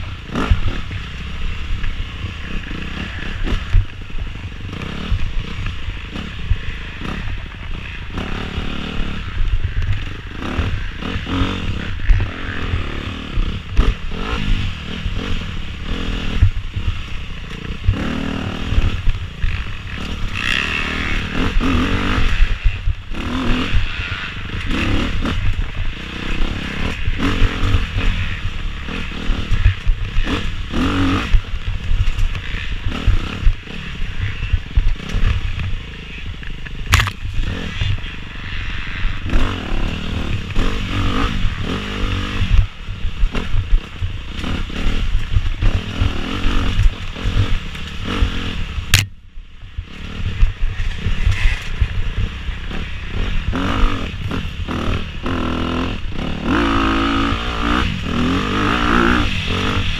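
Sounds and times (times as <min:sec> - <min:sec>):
dirt bike engine revving: 0:00.0 - 0:49.1, 0:49.7 - 0:59.9
knocking and clatter over rough ground: 0:34.8 - 0:38.0.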